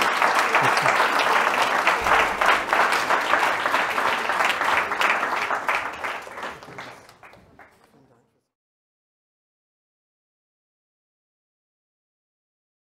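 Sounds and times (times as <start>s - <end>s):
audience clapping: 0.0s - 8.4s.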